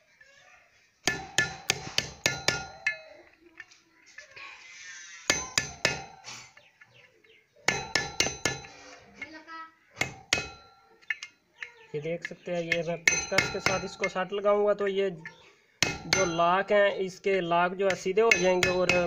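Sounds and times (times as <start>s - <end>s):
hammer tapping metal screwdriver: 17.9s - 19.0s.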